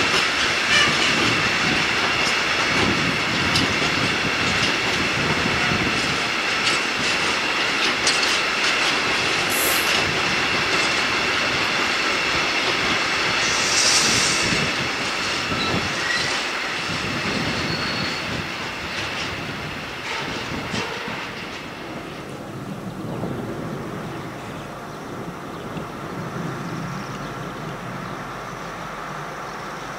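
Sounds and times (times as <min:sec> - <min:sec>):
freight train wheels clattering: 0:00.0 - 0:29.9
train wheels squealing: 0:13.4 - 0:14.7, 0:15.5 - 0:16.5, 0:17.2 - 0:18.4.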